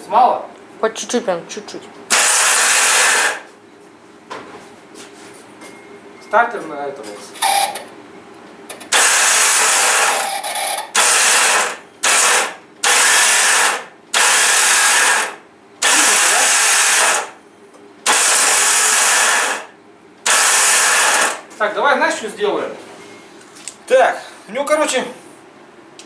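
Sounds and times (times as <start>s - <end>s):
starter motor spinning: 2.1s - 3.5s, 8.7s - 17.4s, 18.0s - 21.4s.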